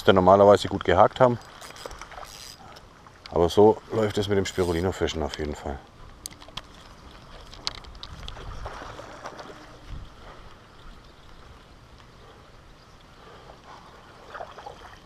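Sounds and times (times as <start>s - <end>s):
faint steady rustle: 0.5s - 14.3s
fishing reel clicks: 1.4s - 2.8s, 4.1s - 5.5s.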